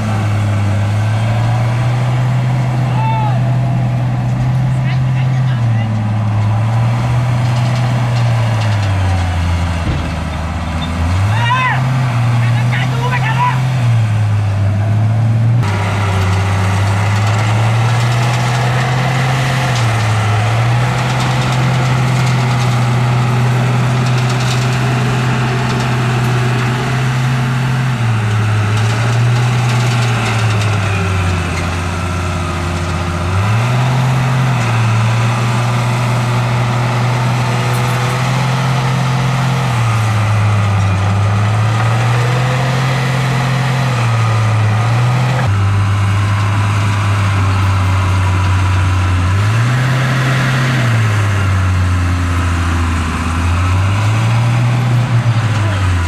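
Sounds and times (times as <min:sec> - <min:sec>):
heavy diesel engine under load: 0:00.0 - 0:56.0.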